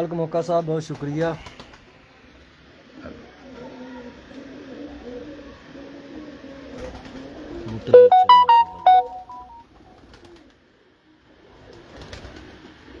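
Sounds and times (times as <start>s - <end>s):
pigeons cooing: 2.7s - 7.9s
electronic device chime melody: 8.0s - 9.6s.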